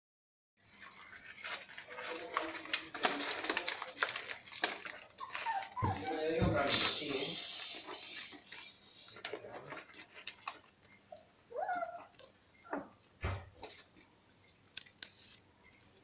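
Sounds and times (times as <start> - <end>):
scratching and rustling: 0.6 - 16.0
puppies whimpering: 5.0 - 10.0, 11.0 - 13.0.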